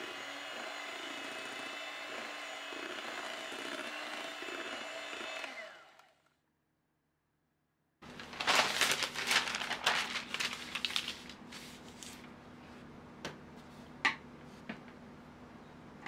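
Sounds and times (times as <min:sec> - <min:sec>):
parchment paper crinkling: 0:08.0 - 0:12.4.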